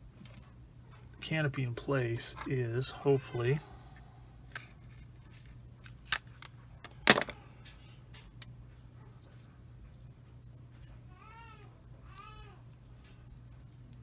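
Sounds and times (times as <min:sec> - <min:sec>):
plastic parts clicking: 0:05.9 - 0:07.4.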